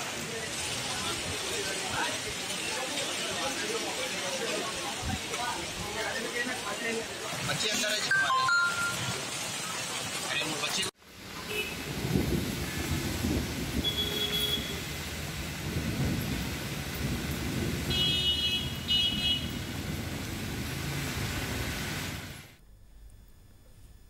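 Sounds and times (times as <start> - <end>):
heavy rain on street: 0.0 - 22.6
short high tones: 8.1 - 9.2.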